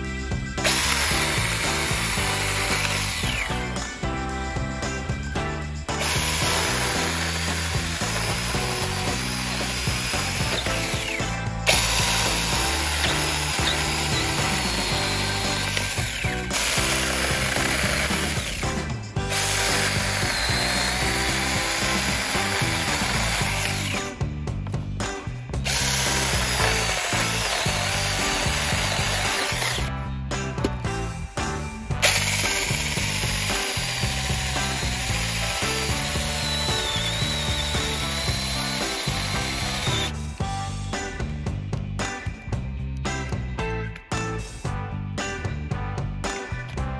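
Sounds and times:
mini chainsaw cutting branches: 0:00.6 - 0:04.0, 0:05.9 - 0:24.2, 0:25.6 - 0:29.9, 0:32.0 - 0:40.2.

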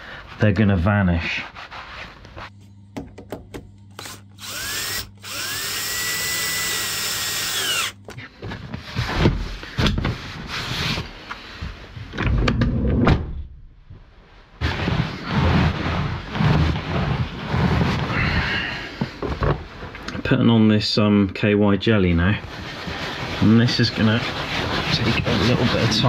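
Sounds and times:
cordless drill whining: 0:04.0 - 0:08.1.

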